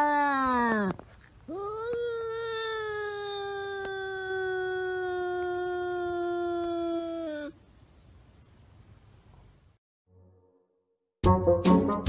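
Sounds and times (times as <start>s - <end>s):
cat yowling: 1.5s - 7.6s.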